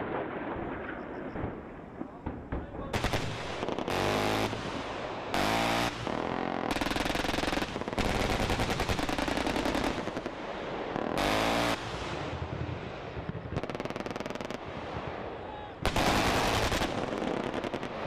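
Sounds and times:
automatic gunfire: 2.3 - 10.3.

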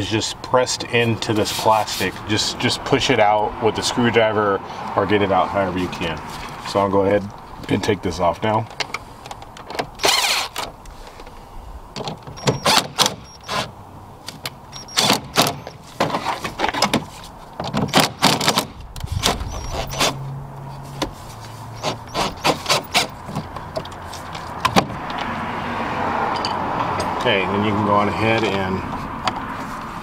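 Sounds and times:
cordless driver whirring: 10.0 - 10.7, 19.0 - 20.2, 21.8 - 23.2
clicks and knocks of handling: 22.7 - 25.3.

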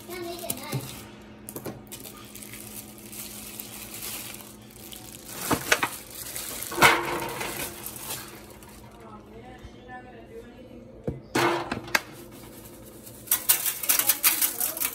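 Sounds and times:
plastic bag crinkling: 1.8 - 9.2, 12.2 - 14.9.

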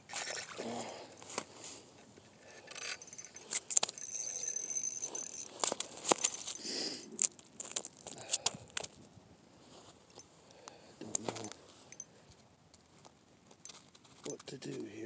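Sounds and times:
rustling: 0.0 - 15.0
ice chips clicking and knocking: 2.8 - 8.9.

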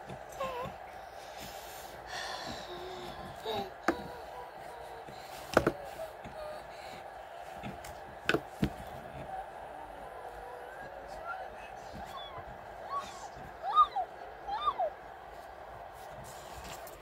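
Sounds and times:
faint hum: 0.0 - 17.0
girl breathing and vocal noises: 0.4 - 7.8.

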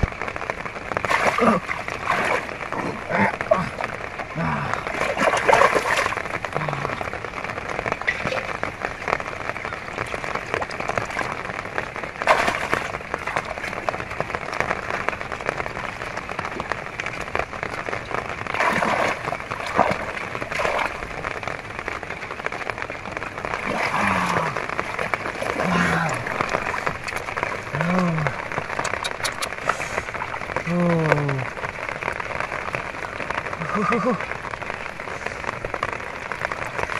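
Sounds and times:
hands splashing in muddy water: 4.5 - 6.2.

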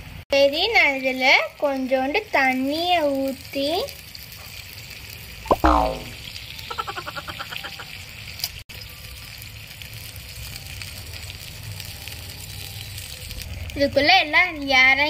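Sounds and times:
quack-like pulses: 5.5 - 7.8.

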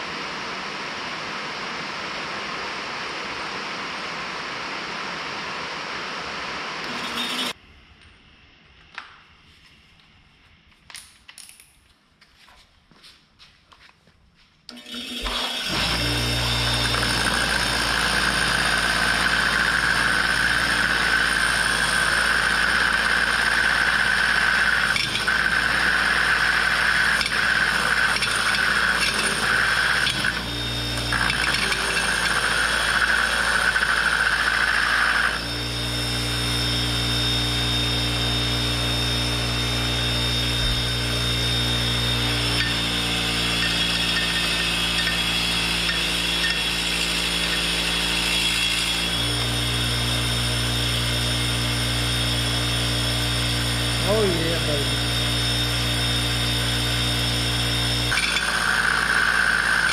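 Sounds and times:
bench grinder motor humming: 6.4 - 7.6, 14.7 - 59.9.

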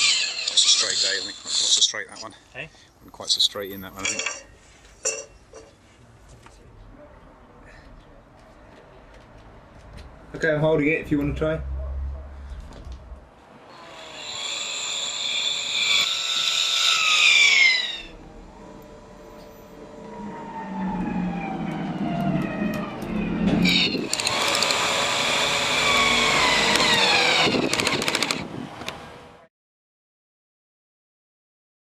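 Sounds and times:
cordless drill motor whine: 13.8 - 20.2, 22.5 - 29.0
rapid clicks: 24.1 - 24.9, 27.5 - 28.4.

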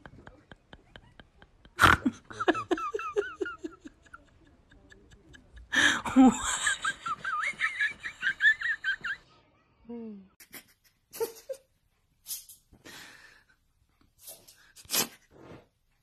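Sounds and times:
person laughing: 0.0 - 9.2.

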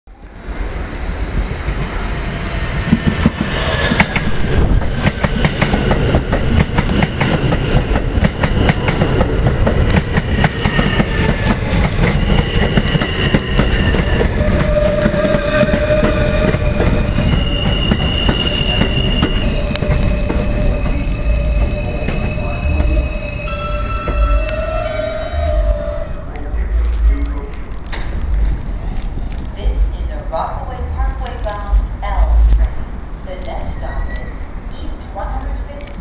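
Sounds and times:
subway train rumbling: 0.1 - 36.0
whining tones sliding down: 12.2 - 27.1.

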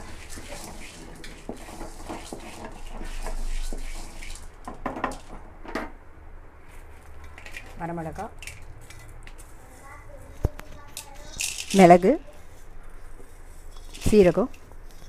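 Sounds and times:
spatula scraping lentils in pot: 0.0 - 4.6
grains rattling against metal: 0.0 - 5.4.

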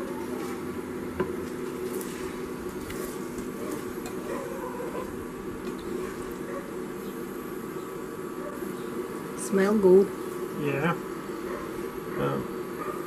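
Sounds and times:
cooktop hum: 0.0 - 8.6
eggs sizzling in pan: 0.0 - 12.8.

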